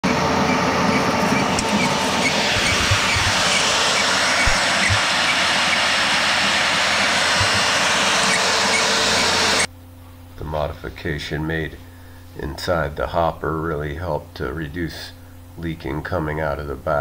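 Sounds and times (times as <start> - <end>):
motor and chain-drive whine: 0.0 - 9.7.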